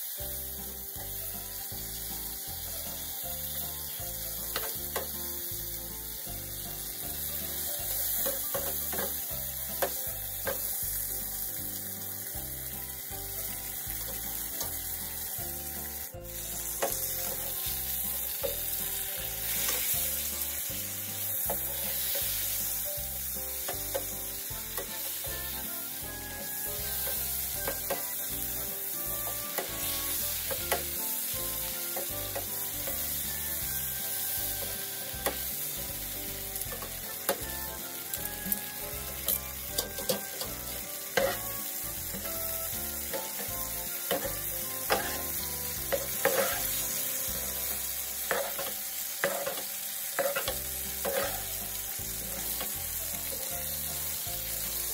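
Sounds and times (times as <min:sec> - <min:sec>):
steak sizzling in a pan: 0:00.0 - 0:54.9
tongs clinking against pan: 0:45.9 - 0:46.8, 0:48.3 - 0:51.4.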